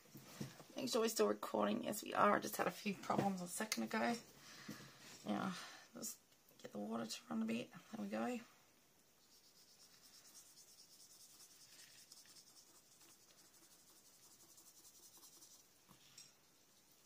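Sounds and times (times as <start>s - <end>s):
brush bristles scratching paper: 9.2s - 17.0s.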